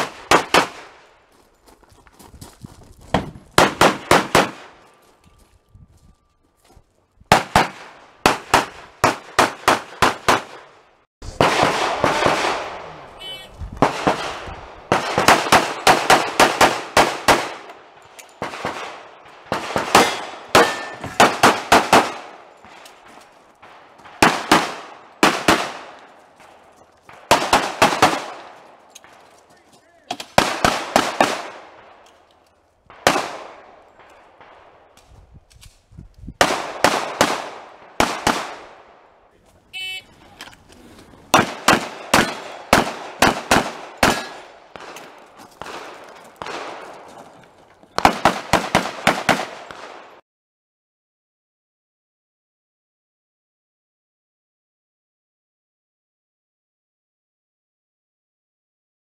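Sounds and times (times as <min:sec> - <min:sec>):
handgun shots with echo: 0:19.8 - 0:22.3, 0:41.4 - 0:46.8.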